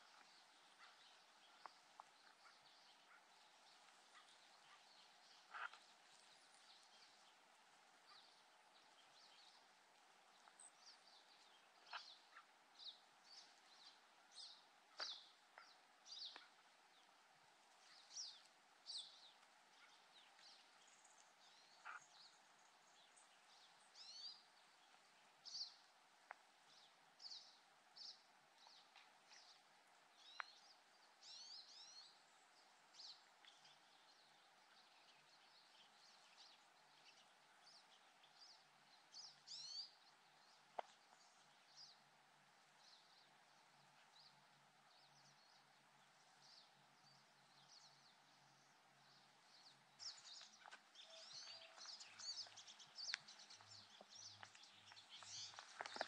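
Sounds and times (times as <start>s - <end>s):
quiet hiss: 0.0s - 56.0s
small birds chirping: 0.0s - 56.0s
faint clicks: 1.6s - 2.5s, 26.2s - 26.5s, 30.2s - 30.6s, 51.8s - 56.0s.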